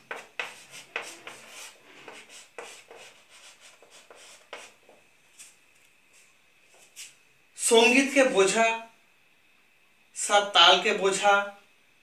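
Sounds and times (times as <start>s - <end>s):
chalk writing on a blackboard: 0.0s - 5.6s.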